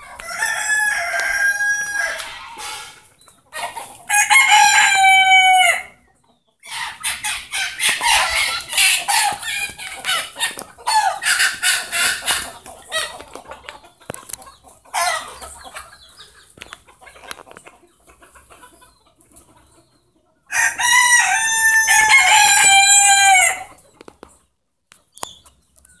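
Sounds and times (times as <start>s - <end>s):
rooster crowing: 0.1s - 3.0s, 4.1s - 6.0s, 20.5s - 23.7s.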